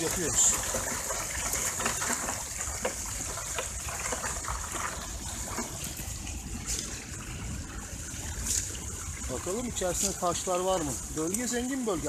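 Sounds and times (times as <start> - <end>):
water splashing through strainer: 0.0 - 12.0.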